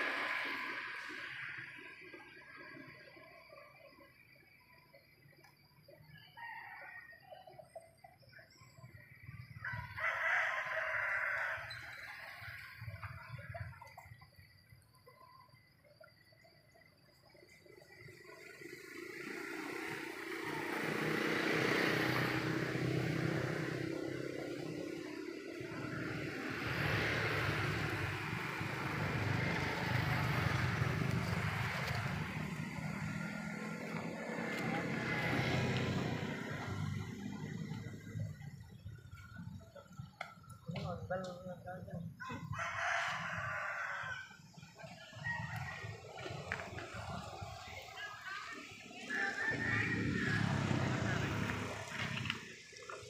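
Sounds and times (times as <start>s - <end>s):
rooster crowing: 6.0s - 7.6s, 9.5s - 12.6s, 20.3s - 37.6s, 42.2s - 46.7s, 49.0s - 52.4s
engine humming steadily: 16.7s - 42.6s.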